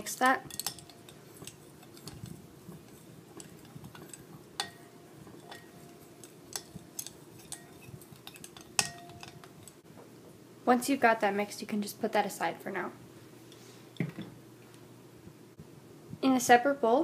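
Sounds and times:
metal spoon stirring slime: 0:00.0 - 0:09.8
spoon clinking against bowl: 0:00.4 - 0:09.8.

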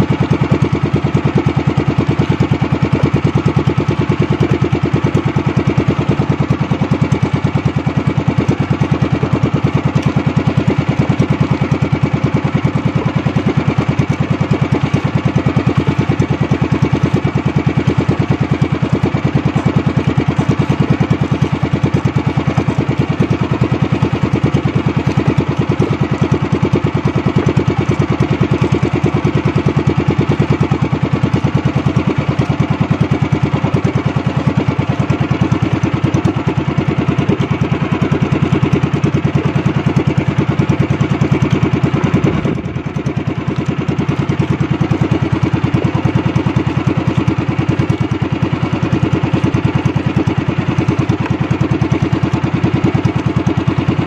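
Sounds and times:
boat engine running: 0:00.0 - 0:54.0.

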